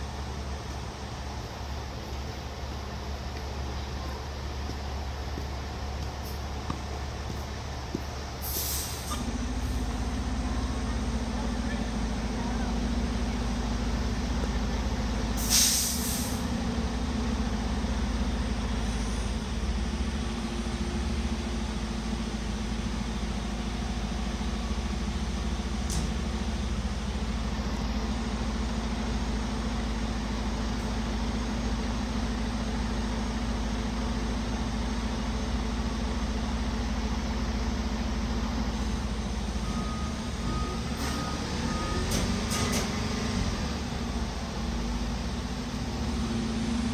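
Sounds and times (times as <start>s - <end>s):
diesel engine idling: 0.0s - 46.9s
air brakes hissing: 8.4s - 9.3s, 15.4s - 16.5s.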